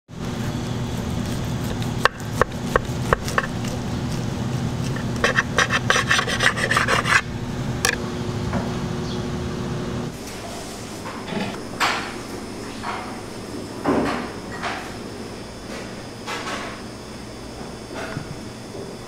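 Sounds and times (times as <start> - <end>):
knife sawing through bun: 0.3 - 7.3
knife tapping: 1.6 - 3.6.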